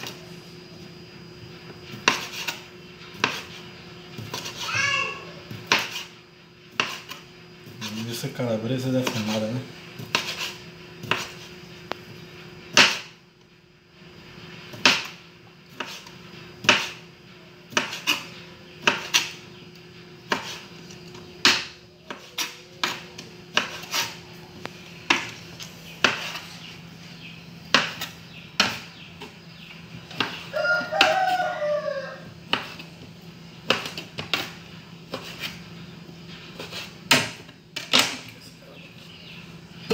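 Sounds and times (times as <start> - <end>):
knife chopping on plastic board: 1.9 - 2.6, 3.2 - 3.6, 4.2 - 4.7, 5.5 - 6.1, 6.7 - 7.2, 8.9 - 9.4, 10.0 - 11.5, 12.7 - 13.2, 14.7 - 17.0, 17.7 - 19.4, 20.3 - 20.6, 21.4 - 24.2, 25.0 - 25.4, 26.0 - 26.5, 27.7 - 29.3, 30.1 - 31.4, 32.5 - 32.9, 33.6 - 35.6, 36.6 - 38.2.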